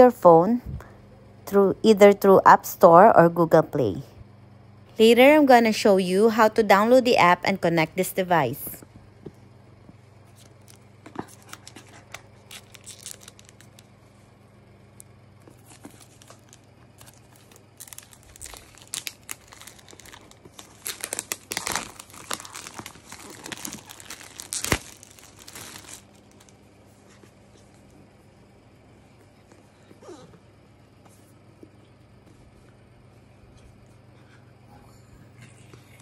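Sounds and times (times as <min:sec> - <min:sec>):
plastic wrapping crinkling: 0:10.3 - 0:13.9, 0:15.5 - 0:26.6.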